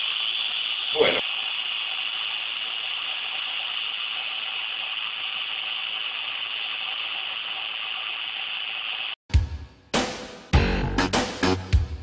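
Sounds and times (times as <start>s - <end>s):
motor whirring hiss: 0.0s - 9.2s.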